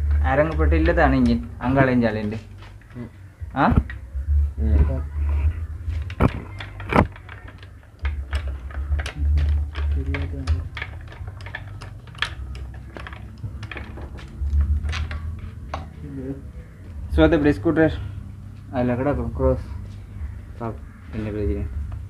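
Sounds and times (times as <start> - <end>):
low rumble: 3.2 - 7.2
tools clinking on metal: 6.5 - 15.9.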